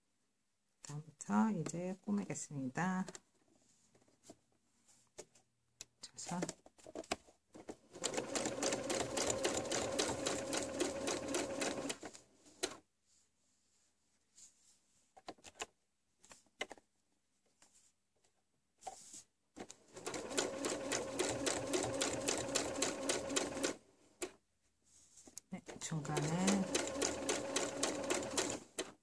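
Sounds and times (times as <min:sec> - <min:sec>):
electric sewing machine stitching: 0:08.0 - 0:12.0, 0:20.0 - 0:23.8, 0:26.0 - 0:29.0.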